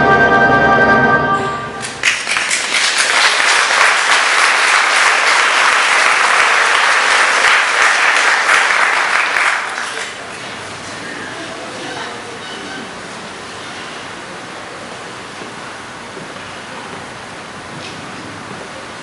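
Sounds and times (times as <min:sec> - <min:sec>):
music closing chord: 0:00.0 - 0:01.9
audience applause: 0:01.8 - 0:10.6.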